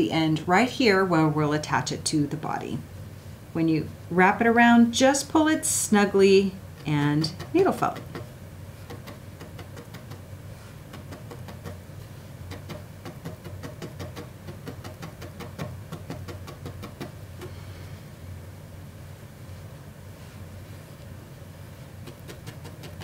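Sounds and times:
low steady hum: 0.0s - 23.0s
felting needle tapping: 6.8s - 10.3s.

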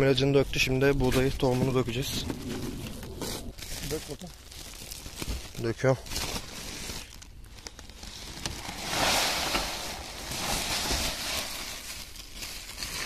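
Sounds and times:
plastic sack rustling: 0.7s - 13.0s
grain pouring into metal bin: 8.4s - 13.0s.

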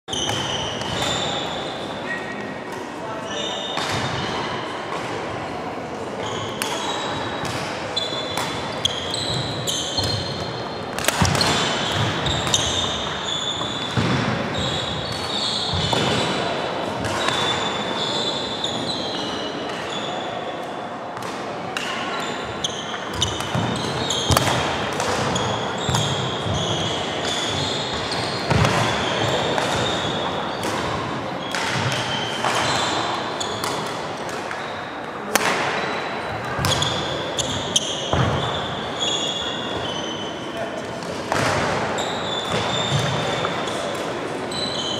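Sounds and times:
shoes squeaking: 0.1s - 2.4s, 6.2s - 16.4s, 22.1s - 33.8s, 35.7s - 40.7s, 42.0s - 43.8s
racket striking shuttlecock: 10.0s - 13.1s, 23.2s - 26.2s, 33.6s - 34.6s.

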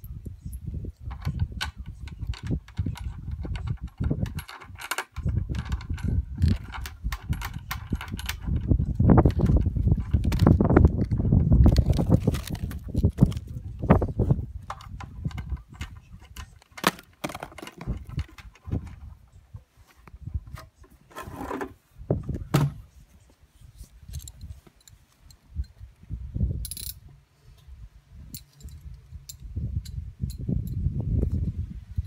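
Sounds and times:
plastic drum knocking and scraping: 1.1s - 13.4s, 14.7s - 19.1s, 20.4s - 22.8s.

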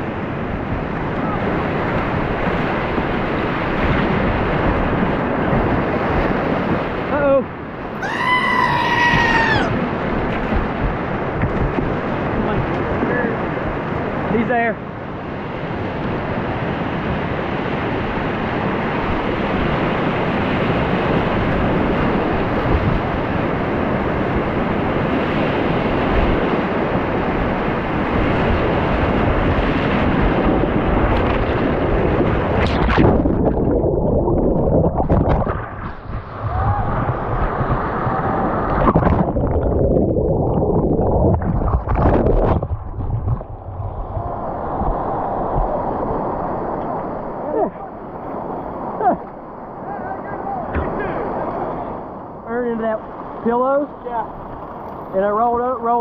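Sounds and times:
muffled underwater splashes: 9.0s - 54.8s.

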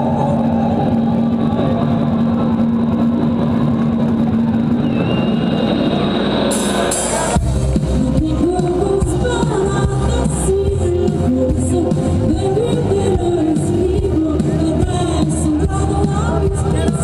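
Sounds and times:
synthesizer drone: 0.0s - 17.0s
woman singing: 8.0s - 17.0s.

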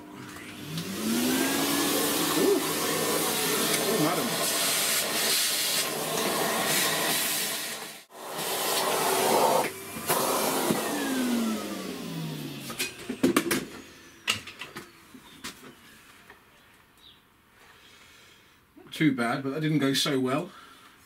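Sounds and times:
vacuum cleaner motor spinning down: 0.0s - 14.2s.

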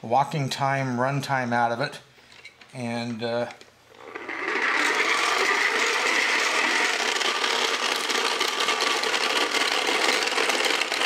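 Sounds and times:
flywheel and gears whirring: 4.0s - 11.0s.

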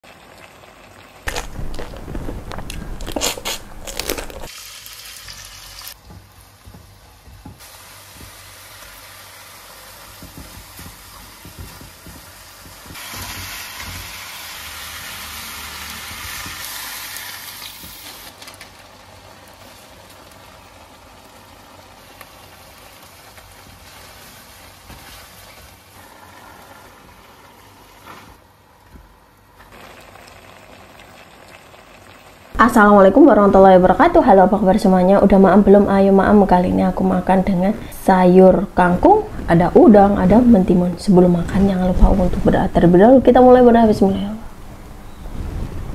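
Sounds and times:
prawns sizzling in a wok: 2.8s - 28.4s.

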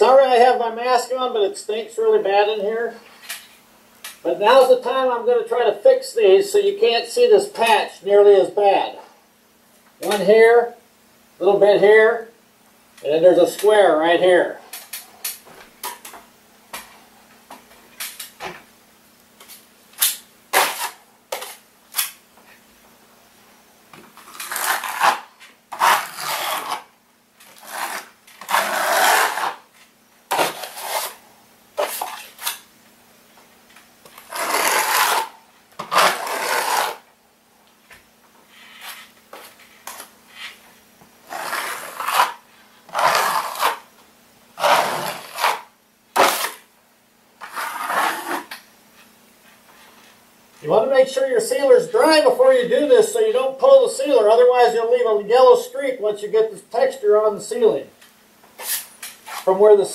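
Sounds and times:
drywall knife scraping compound: 20.5s - 21.6s, 24.2s - 26.9s, 27.5s - 29.7s, 30.3s - 31.2s, 31.8s - 32.6s, 34.1s - 37.1s, 38.5s - 40.6s, 41.2s - 43.9s, 44.6s - 46.7s, 47.4s - 48.6s, 58.6s - 59.5s.

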